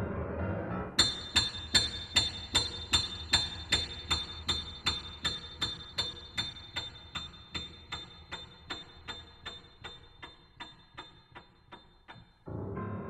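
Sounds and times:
piano striking high chord: 12.4 - 13.0.

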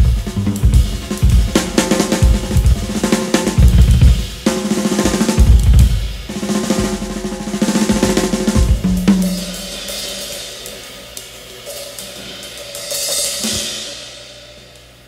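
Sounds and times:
rapid drum strikes: 0.0 - 14.4
cymbals ringing: 0.0 - 14.8.

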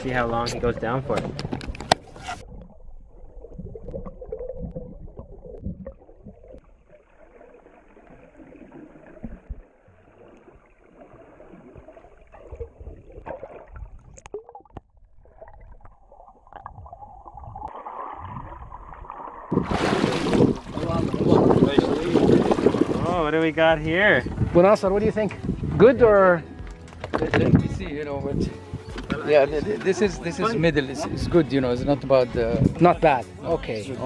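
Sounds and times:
muffled water gurgling and sloshing: 0.0 - 26.2.

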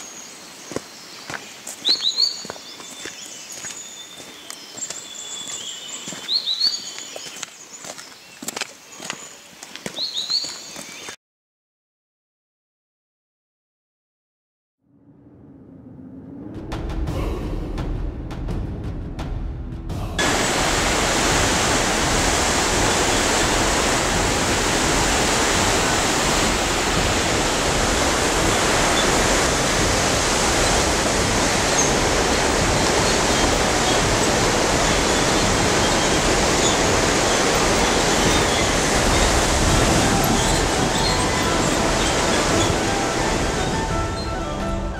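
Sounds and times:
river rushing over boulders: 20.2 - 44.9.

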